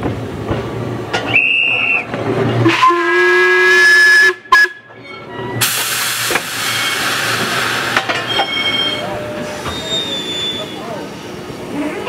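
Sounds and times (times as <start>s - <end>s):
steam whistle: 1.3s - 4.9s
steam hissing: 5.6s - 11.8s.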